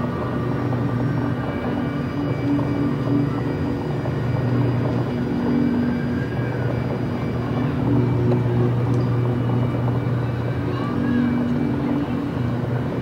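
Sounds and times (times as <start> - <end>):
ambient drone music: 0.0 - 13.0.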